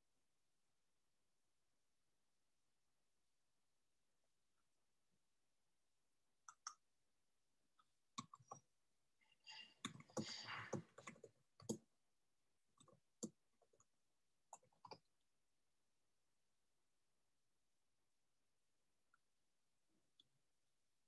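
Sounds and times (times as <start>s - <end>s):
faint clicks and taps: 6.4s - 6.8s, 7.8s - 8.7s, 9.8s - 11.9s, 14.5s - 15.1s.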